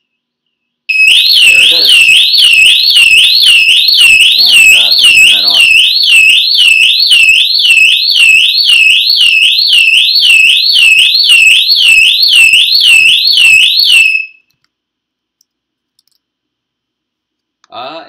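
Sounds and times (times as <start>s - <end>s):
whooping alarm siren: 0.9s - 14.4s.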